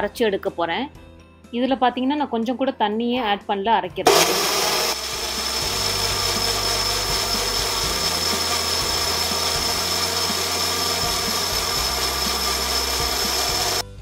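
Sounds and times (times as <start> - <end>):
blender whining: 4.1 - 14.0.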